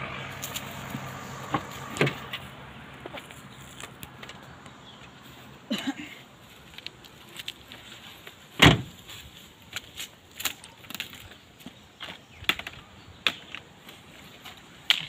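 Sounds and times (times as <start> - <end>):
car door shutting: 1.5 - 2.4, 8.6 - 9.0.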